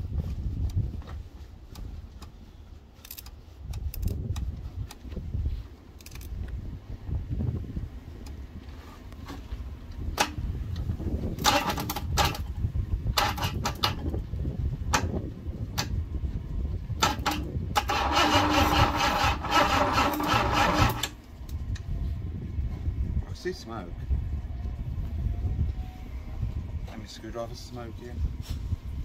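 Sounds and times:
starter motor cranking engine: 0:11.4 - 0:12.5, 0:13.1 - 0:14.0, 0:17.0 - 0:21.2.

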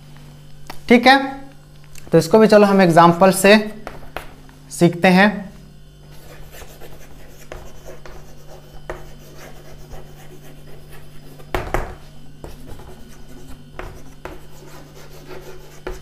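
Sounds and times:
steady low hum: 0:00.0 - 0:16.0
chalk scratching on chalkboard: 0:06.1 - 0:16.0
loud knock: 0:11.5 - 0:12.0.

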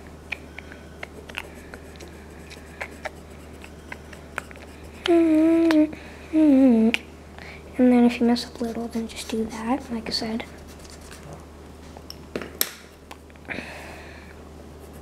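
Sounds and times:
pencil scratching on paper: 0:01.2 - 0:05.2, 0:08.5 - 0:09.6, 0:10.4 - 0:11.3.

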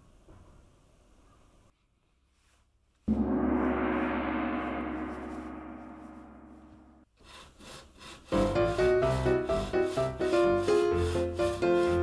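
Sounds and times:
gong ringing: 0:03.1 - 0:07.0.

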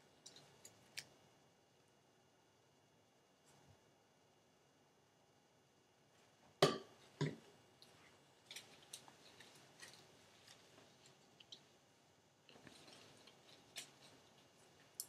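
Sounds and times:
soft rustling of hair and cloth: 0:06.0 - 0:15.0.

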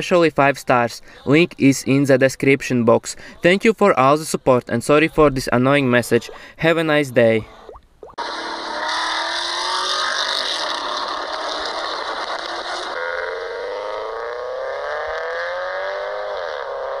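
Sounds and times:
car engine revving slowly: 0:08.2 - 0:17.0.

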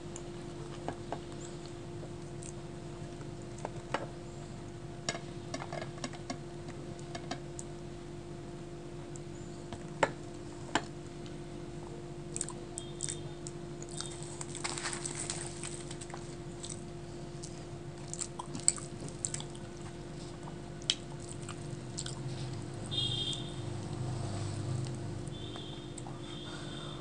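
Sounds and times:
steady low hum: 0:00.0 - 0:27.0
wet chewing: 0:12.3 - 0:22.7.

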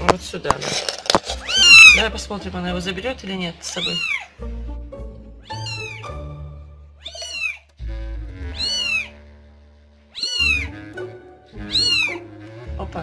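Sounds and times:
background music: 0:00.0 - 0:13.0
kitten mewing: 0:01.4 - 0:02.0, 0:07.0 - 0:07.7, 0:08.5 - 0:09.2, 0:10.1 - 0:10.7, 0:11.6 - 0:12.3.

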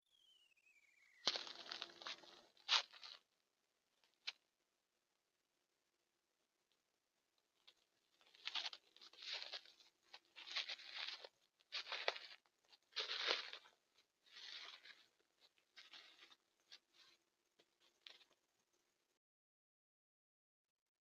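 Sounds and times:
footsteps in dry leaves: 0:01.2 - 0:03.2, 0:08.2 - 0:17.1.

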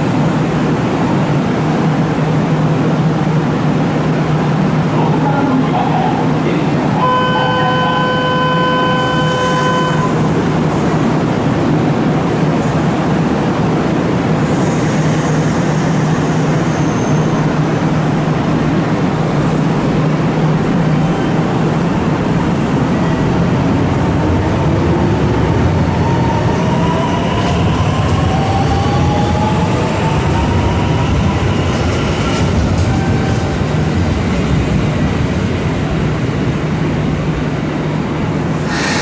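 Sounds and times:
electric train humming: 0:00.0 - 0:39.0.

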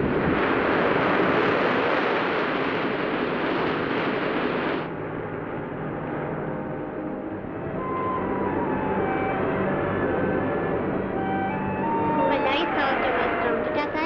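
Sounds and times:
surf crashing on rocks: 0:00.0 - 0:04.9.

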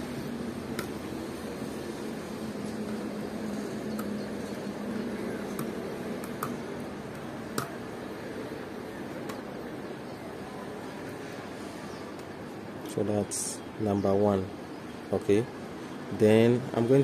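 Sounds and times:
steady background hum: 0:00.0 - 0:17.0.

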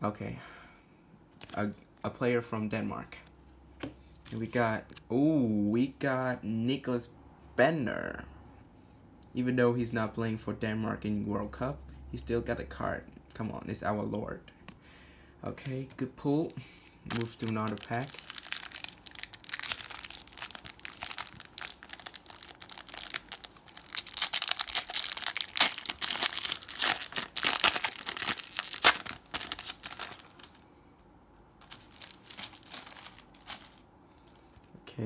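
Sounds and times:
foil wrapper tearing and crinkling: 0:17.0 - 0:30.6, 0:31.6 - 0:34.4.

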